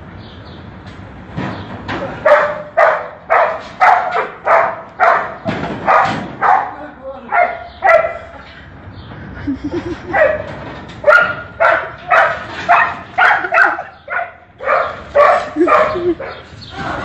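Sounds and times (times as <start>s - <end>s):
dog barking: 2.2s - 8.3s, 10.1s - 16.4s.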